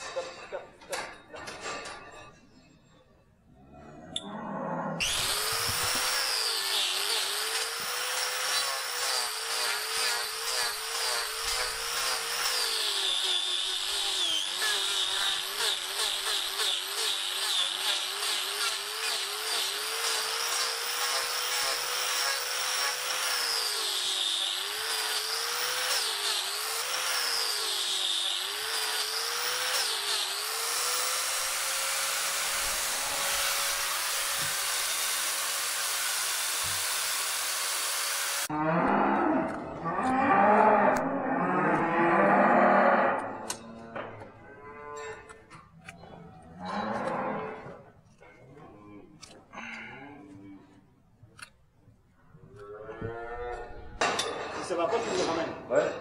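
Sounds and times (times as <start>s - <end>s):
angle grinder cutting hoof: 5.0s - 48.3s.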